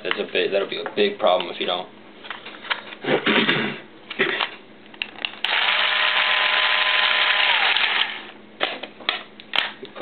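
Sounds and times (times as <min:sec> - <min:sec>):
electric motor whir: 0:05.4 - 0:08.3.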